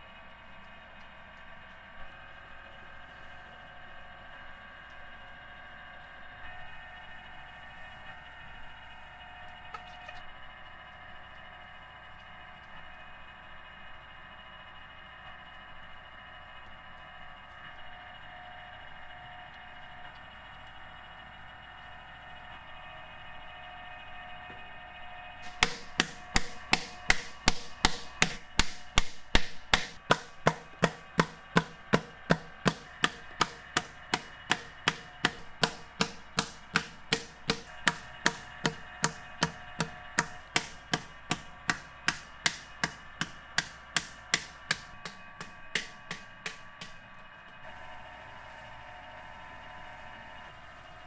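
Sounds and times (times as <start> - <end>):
wooden paddle beating clay jar: 25.4 - 47.0.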